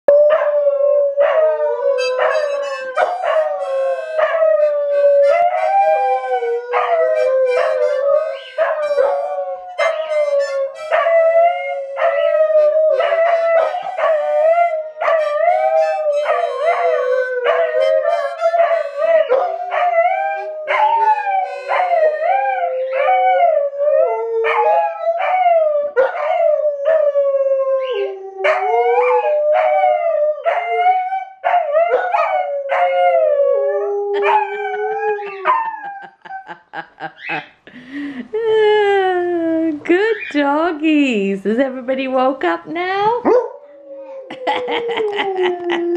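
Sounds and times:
dogs howling: 0.1s - 37.6s, 43.2s - 45.9s
harmonica playing: 1.4s - 23.7s.

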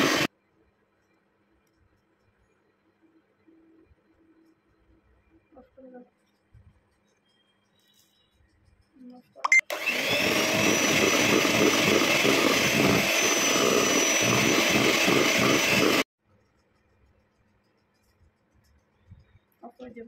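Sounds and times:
electric hand mixer whining: 0.0s - 0.3s, 9.6s - 16.1s.

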